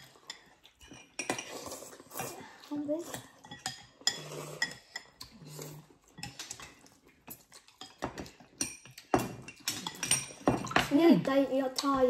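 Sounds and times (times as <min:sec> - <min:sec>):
chopsticks and spoons clinking bowls: 0:00.0 - 0:12.0.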